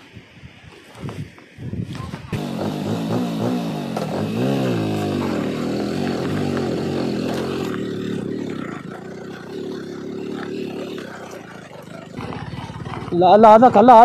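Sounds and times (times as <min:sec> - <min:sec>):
motorcycle engine under load: 0:02.3 - 0:14.0.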